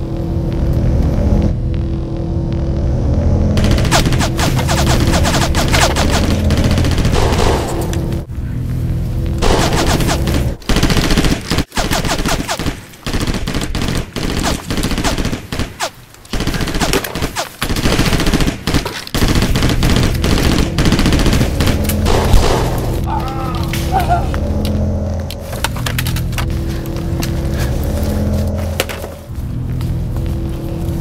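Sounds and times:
automatic gunfire bursts: 9.4 - 22.8.

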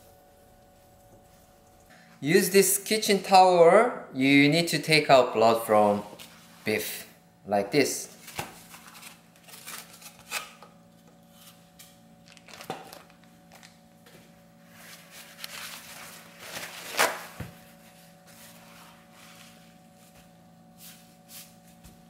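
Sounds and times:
paper towels rustling: 14.6 - 21.9
paper towel tearing: 14.9 - 17.4.

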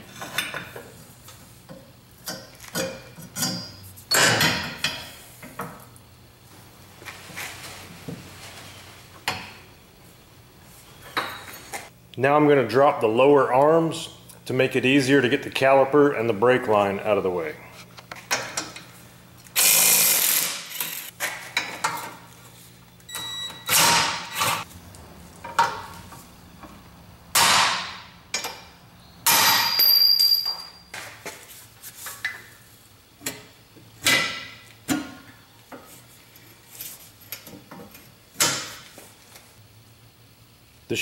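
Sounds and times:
impact wrench hammering: 27.3 - 28.6.

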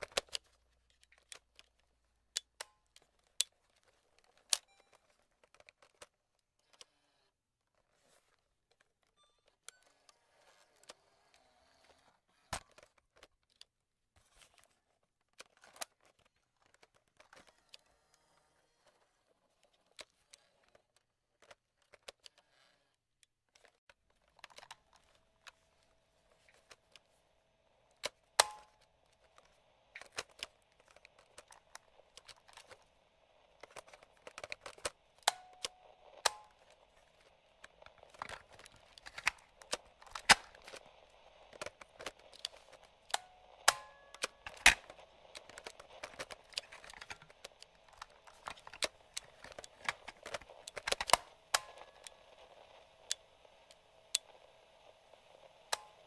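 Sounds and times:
faint steady hum: 24.3 - 56.0.

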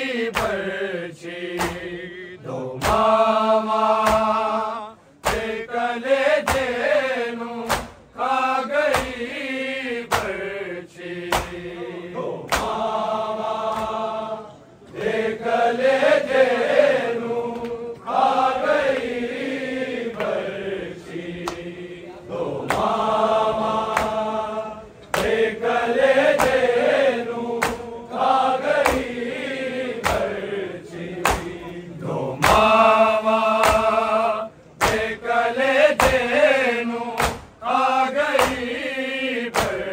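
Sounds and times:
men chanting a lament: 0.0 - 39.9.

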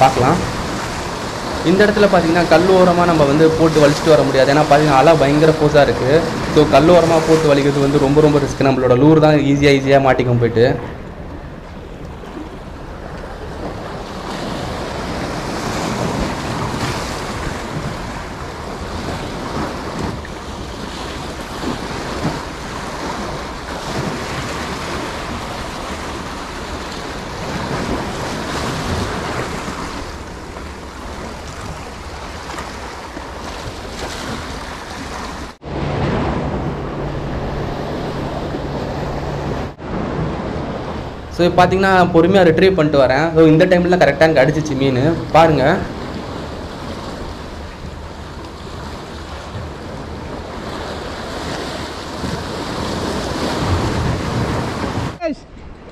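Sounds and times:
waves breaking on concrete blocks: 0.0 - 9.2, 12.2 - 38.6, 44.4 - 55.8
steady low hum: 35.6 - 43.9.

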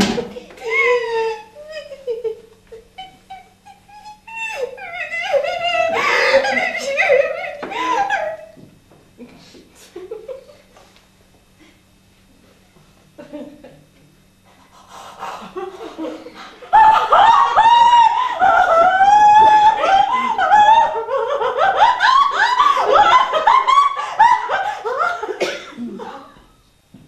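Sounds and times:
woman wailing: 0.6 - 2.3, 3.0 - 8.6, 16.6 - 25.1.

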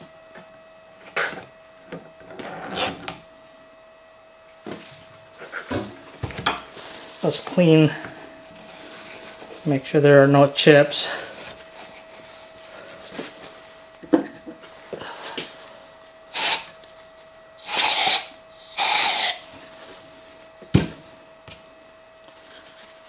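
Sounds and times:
faint steady hum: 0.0 - 23.0
aerosol spray can hisses: 16.3 - 16.7, 17.6 - 19.4.

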